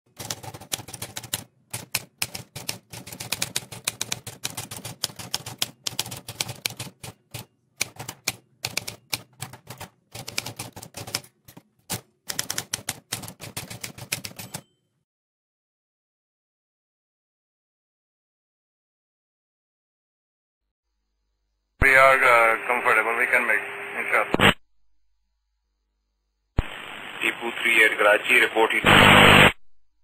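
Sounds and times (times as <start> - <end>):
typewriter keys clacking: 0.1 - 14.7.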